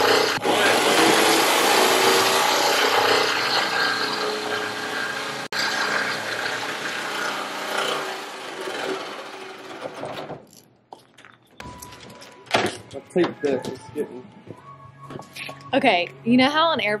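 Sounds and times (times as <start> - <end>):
power saw cutting sheet metal: 0.0 - 10.4.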